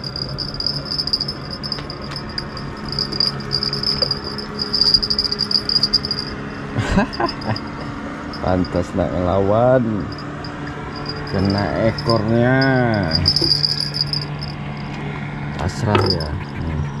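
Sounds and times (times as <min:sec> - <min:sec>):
insects trilling: 0:00.0 - 0:06.4, 0:10.1 - 0:14.5
low hum: 0:00.0 - 0:17.0.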